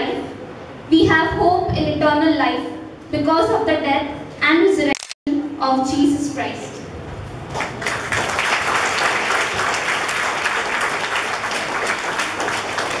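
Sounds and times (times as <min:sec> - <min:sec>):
audience applauding: 0:07.5 - 0:13.0.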